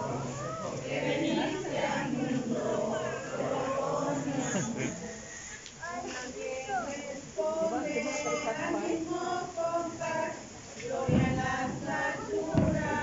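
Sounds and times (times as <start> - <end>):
group singing a lullaby: 0.0 - 13.0
low burst near microphone: 8.9 - 13.0.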